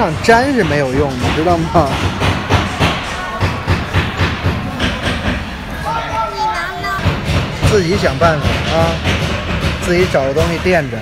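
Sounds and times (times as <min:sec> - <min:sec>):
steady background din: 0:00.0 - 0:11.0
irregular knocks: 0:06.9 - 0:10.9.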